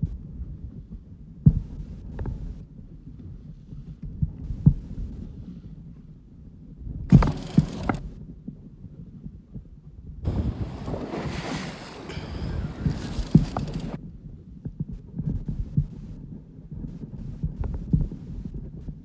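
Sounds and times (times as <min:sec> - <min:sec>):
wind rumble on microphone: 0:00.0 - 0:19.0
sea water splashing against boat: 0:10.3 - 0:14.0.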